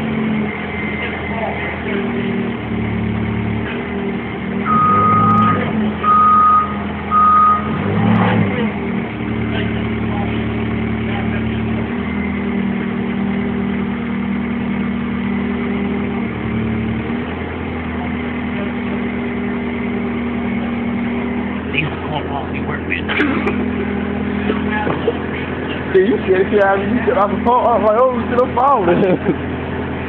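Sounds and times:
forklift engine running: 0.0 - 30.0
reversing alarm beeping: 4.6 - 8.0.

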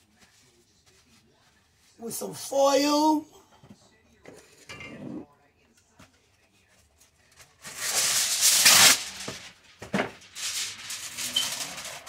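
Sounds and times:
aluminium foil crinkling: 6.6 - 12.0.

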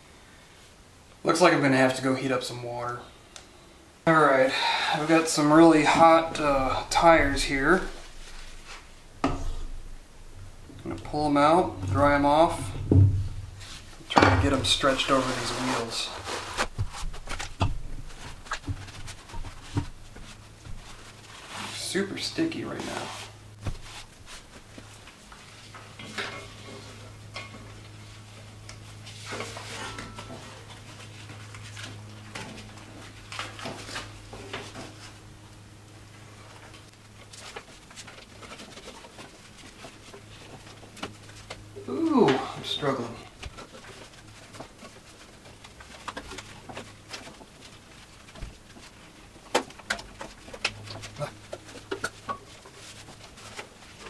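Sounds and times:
steady low hum: 0.0 - 54.0
rubbing and rustling handling noise: 4.2 - 54.0.

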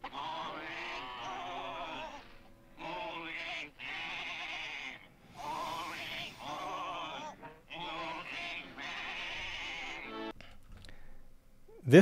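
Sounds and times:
cartoon sheep bleating: 0.0 - 10.3.

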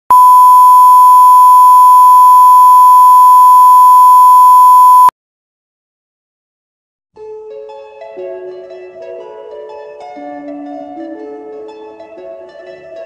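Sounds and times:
steady electronic test tone beep: 0.1 - 5.1.

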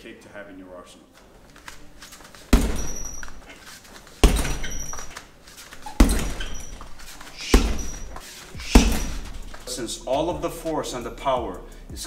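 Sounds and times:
kicks thudding on punching bag: 2.5 - 3.4, 4.2 - 5.1, 5.8 - 9.7.

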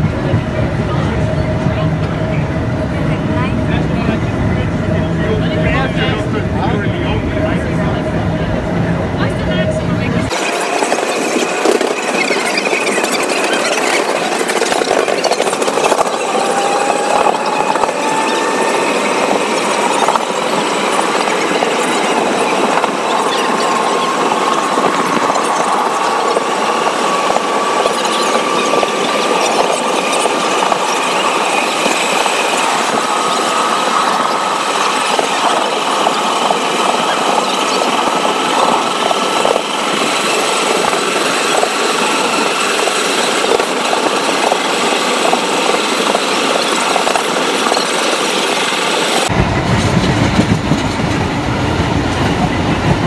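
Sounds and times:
train wheel and rail noise: 0.0 - 53.0
motor whine rising in pitch: 4.5 - 21.0.

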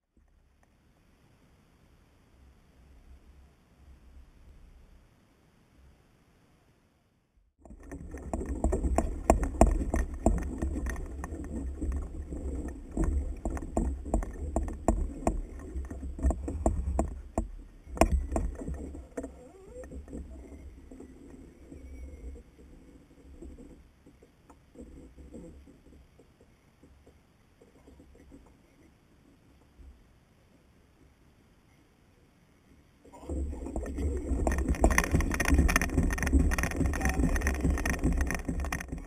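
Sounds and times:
irregular knocking and clicking: 7.6 - 22.7, 23.3 - 31.1, 33.2 - 39.0
low rumble: 33.2 - 39.0.

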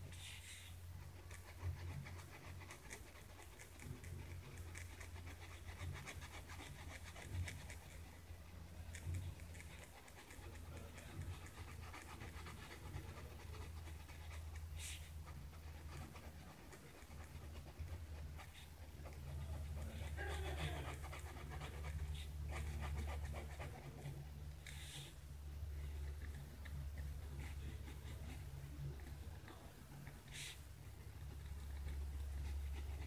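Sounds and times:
low steady hum: 0.0 - 33.0
pen scratching on paper: 0.2 - 25.2.

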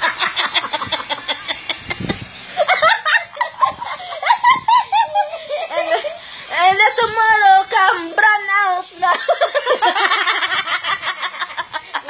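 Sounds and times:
woman laughing high-pitched: 0.0 - 6.6.

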